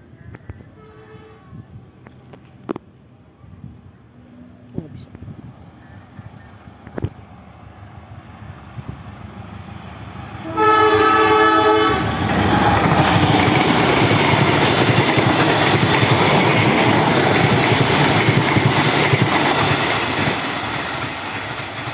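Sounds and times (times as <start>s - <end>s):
train rushing past on rails: 0.2s - 21.9s
locomotive horn blast: 10.4s - 12.2s.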